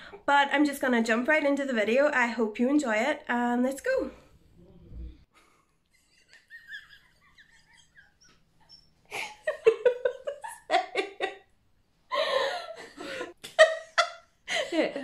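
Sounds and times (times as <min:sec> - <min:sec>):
women laughing: 0:06.0 - 0:11.5, 0:12.1 - 0:15.0.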